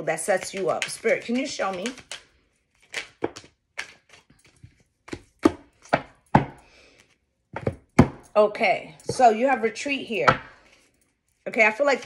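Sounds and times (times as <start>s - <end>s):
cards shuffled and tapped: 0.1s - 8.2s.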